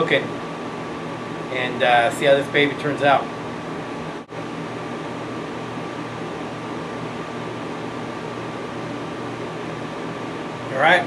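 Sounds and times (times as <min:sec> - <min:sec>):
air conditioning running: 0:00.0 - 0:11.0.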